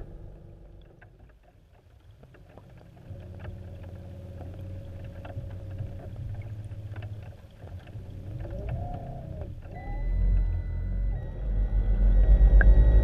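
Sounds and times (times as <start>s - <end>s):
light ticks: 0.0s - 11.2s
underwater motor hum: 0.0s - 13.0s
faint steady tone: 2.8s - 13.0s.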